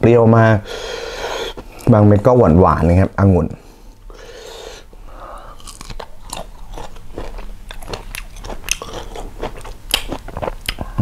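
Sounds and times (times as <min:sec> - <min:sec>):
person chewing grapes: 0:04.4 - 0:11.0.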